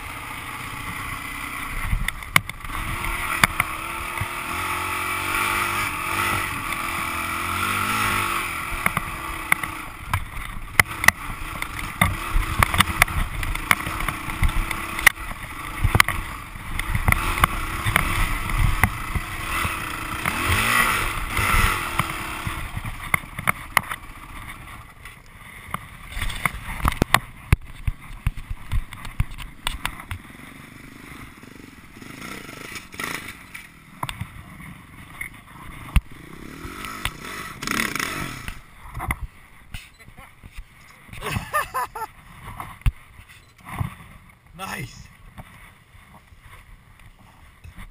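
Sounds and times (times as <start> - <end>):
dirt bike engine revving: 0.0 - 24.9, 29.9 - 33.9, 35.0 - 39.2.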